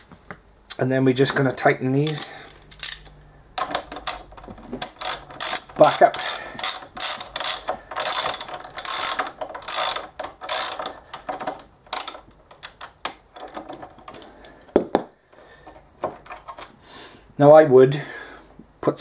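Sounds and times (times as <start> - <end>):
ratchet wrench clicking: 2.0 - 13.5.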